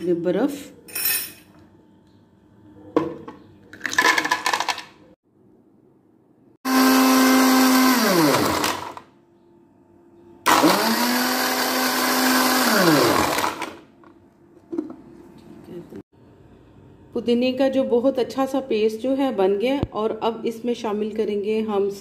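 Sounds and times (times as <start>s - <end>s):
electric blender grinding: 6.6s - 9.1s, 10.5s - 13.9s.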